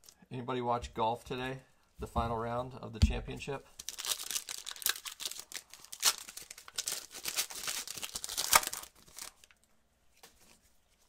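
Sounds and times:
plastic wrapper crinkling and tearing: 3.7 - 10.6.

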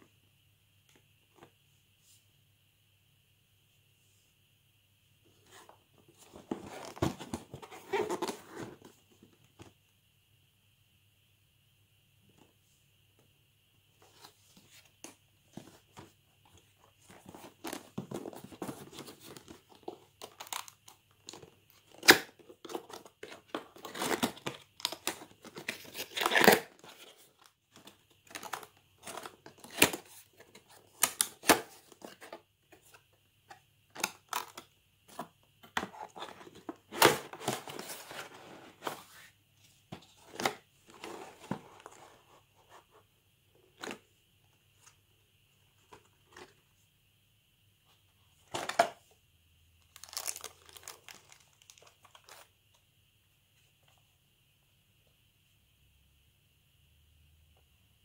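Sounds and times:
plastic packaging snaps: 50.0 - 51.8
packaging scraping and tearing: 50.0 - 52.3.

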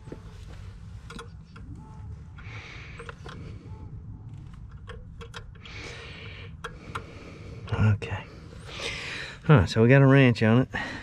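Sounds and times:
low steady rumble: 0.0 - 11.0
wrench metallic clicks: 4.4 - 7.1.

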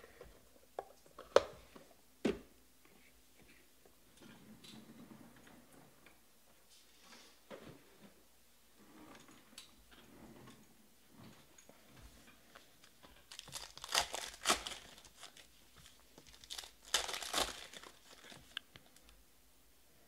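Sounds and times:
foil wrapper crinkling and tearing: 13.3 - 18.6.

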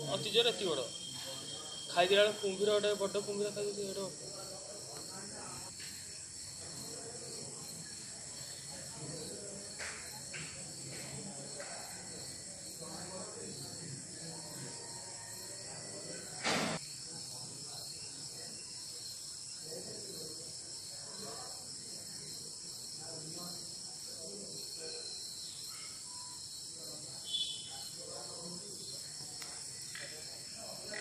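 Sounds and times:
crickets chirping: 0.0 - 31.0.

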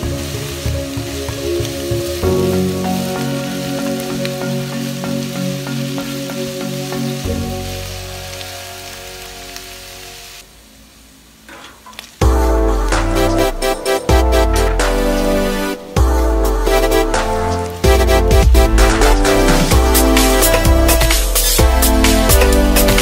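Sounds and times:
background music: 0.0 - 10.4, 12.2 - 23.0
food sizzling in a frying pan: 0.0 - 23.0.

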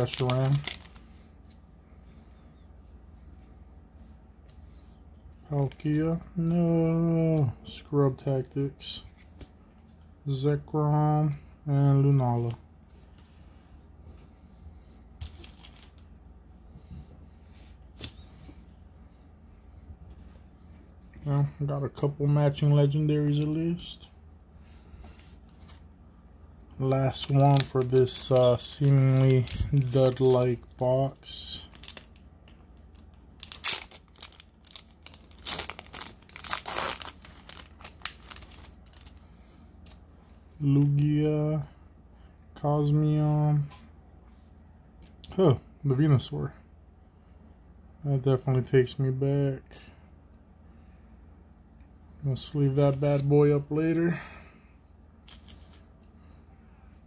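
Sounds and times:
foil pack crinkling and tearing: 0.0 - 1.1, 26.9 - 39.2
cards rustling: 0.0 - 2.3, 15.2 - 16.1, 26.6 - 39.2, 55.3 - 55.8.

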